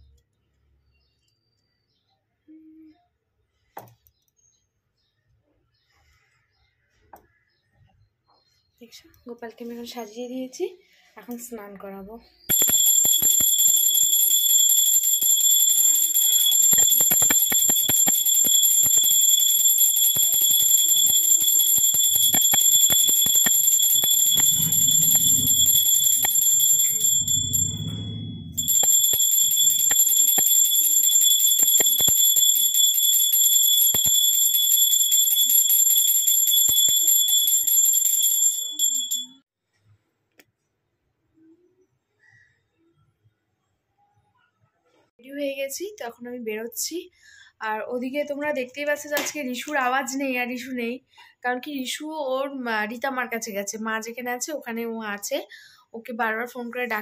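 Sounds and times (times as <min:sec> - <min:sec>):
hand bell ringing: 0:12.5 - 0:39.4.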